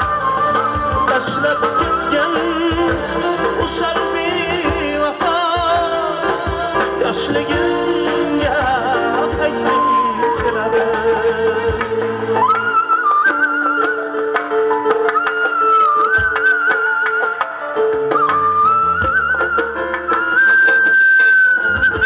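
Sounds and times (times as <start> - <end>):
steady drum beat: 0.0 - 12.4
keyboard: 0.0 - 22.0
side-blown flute: 0.0 - 22.0
man singing with vibrato: 0.9 - 13.2.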